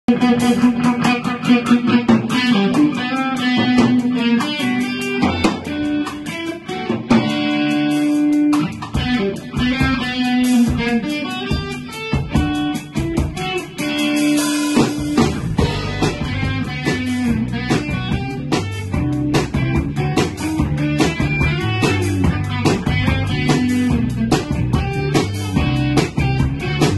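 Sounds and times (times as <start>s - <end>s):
drum kit beat: 0.1s - 26.9s
electric guitar lead notes: 0.1s - 26.9s
bass line: 14.4s - 26.9s.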